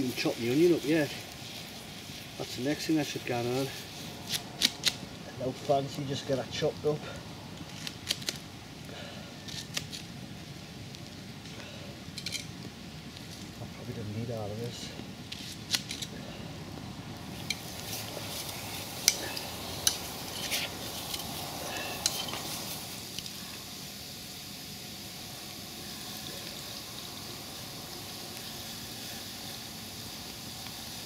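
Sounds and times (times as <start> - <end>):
food sizzling in a pot: 0.0 - 31.0
utensils clinking on metal: 19.0 - 22.5.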